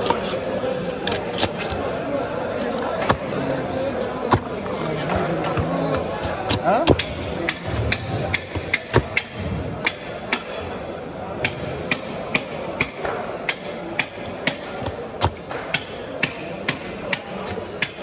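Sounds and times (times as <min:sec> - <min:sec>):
knife chopping on wooden board: 0:05.5 - 0:10.4.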